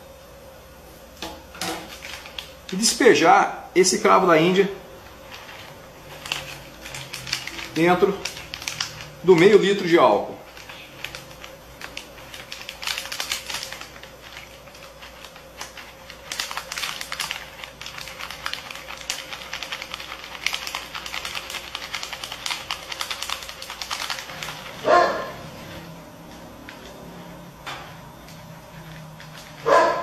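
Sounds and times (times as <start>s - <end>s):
plastic packet crinkling: 1.8s - 3.1s, 4.0s - 27.1s, 28.3s - 30.0s
cloves pattering into a bottle: 5.3s - 24.8s
dog barking: 24.8s - 25.5s, 29.6s - 30.0s.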